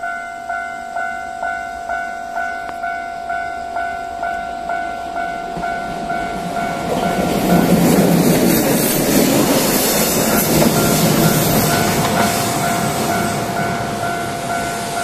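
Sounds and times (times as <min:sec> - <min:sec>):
approaching freight train: 0:00.0 - 0:15.0
level crossing alarm dinging: 0:10.2 - 0:15.0.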